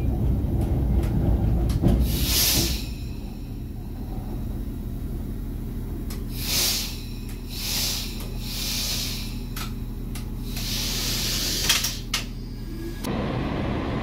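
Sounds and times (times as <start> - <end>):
diesel engine humming: 0.0 - 14.0
compressed air hisses: 2.0 - 3.1, 6.3 - 9.5, 10.4 - 12.1.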